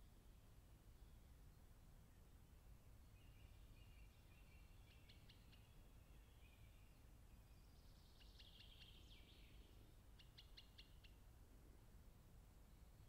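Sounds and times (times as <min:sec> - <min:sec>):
low steady background noise: 0:00.0 - 0:13.0
songbird calls: 0:03.1 - 0:11.2.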